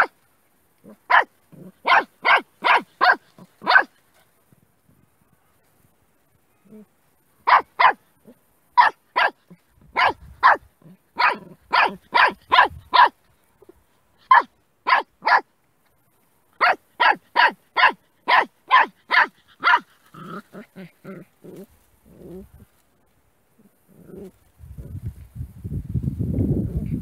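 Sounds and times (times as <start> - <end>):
puppy barking: 0.9 - 3.9, 7.4 - 13.2, 14.2 - 15.5, 16.6 - 20.7.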